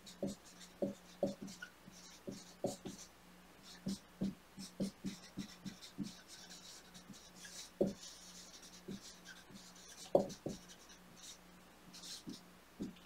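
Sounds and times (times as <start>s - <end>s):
marker writing on whiteboard: 0.0s - 13.0s
soft knocks against whiteboard: 10.1s - 10.6s.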